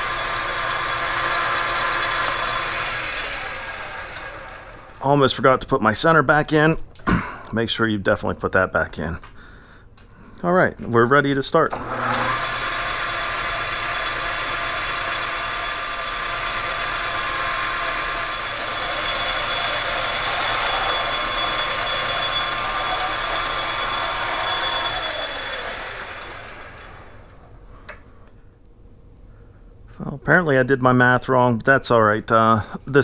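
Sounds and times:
metal lathe humming and whining: 0:00.0 - 0:05.0, 0:11.7 - 0:27.4
lathe switch click: 0:04.1 - 0:04.3, 0:11.7 - 0:12.3.

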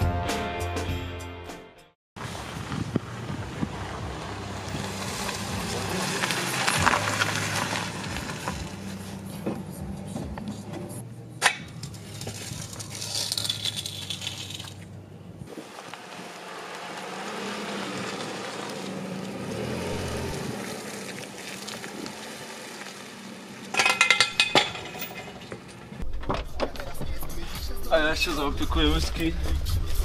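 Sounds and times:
car engine idling: 0:02.3 - 0:30.0
glass clinking and rattling: 0:23.7 - 0:25.5.

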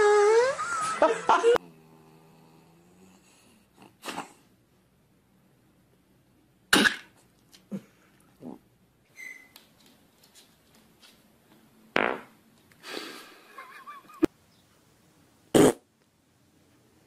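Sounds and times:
fart noises: 0:06.7 - 0:07.2, 0:12.0 - 0:12.3, 0:15.5 - 0:15.9.

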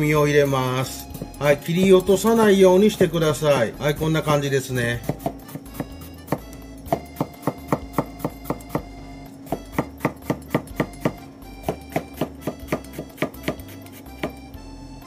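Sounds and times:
background music: 0:00.0 - 0:15.0
knife cutting cucumber on board: 0:05.0 - 0:08.9, 0:09.5 - 0:14.4.

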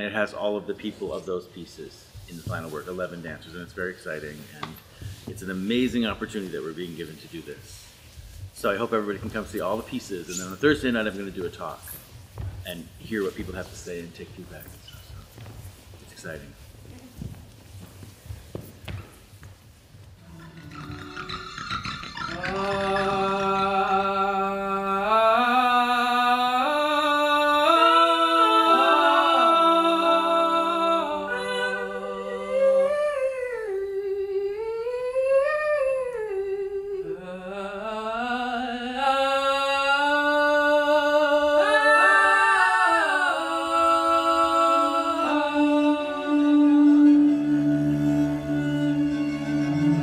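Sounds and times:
wordless voices humming and singing: 0:20.2 - 0:50.0.

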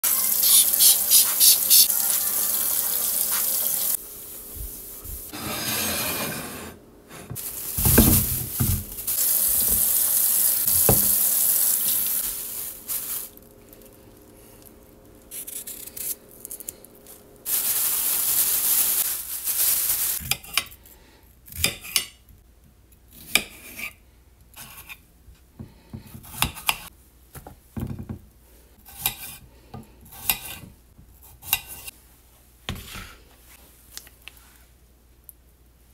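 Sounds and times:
kitchen tap running: 0:00.0 - 0:04.0, 0:07.7 - 0:13.0.

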